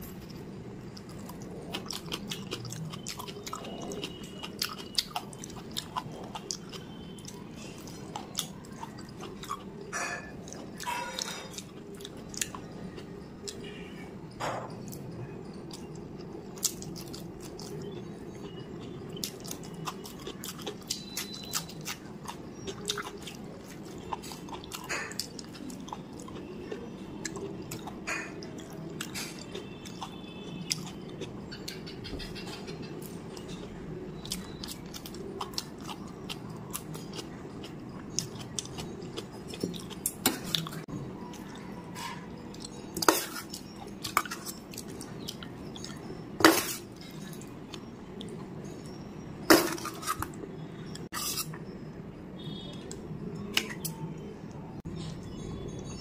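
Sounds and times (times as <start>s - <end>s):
low background hum: 0.0s - 56.0s
spoon scraping metal bowl: 43.0s - 44.6s, 49.4s - 50.4s, 51.2s - 51.6s.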